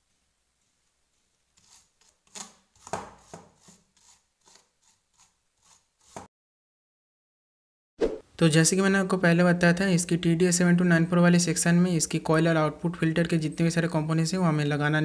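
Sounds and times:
small brush scrubbing circuit board: 1.1s - 2.2s, 3.2s - 6.3s.

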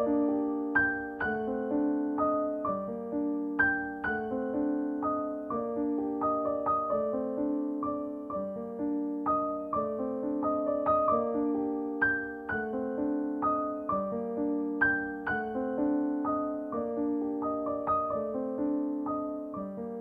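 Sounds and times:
soft piano music: 0.0s - 20.0s.

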